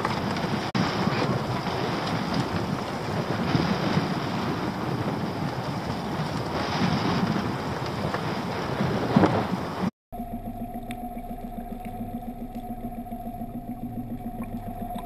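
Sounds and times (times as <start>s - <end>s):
wind buffeting microphone: 0.0s - 9.9s
sea water washing: 0.0s - 15.0s.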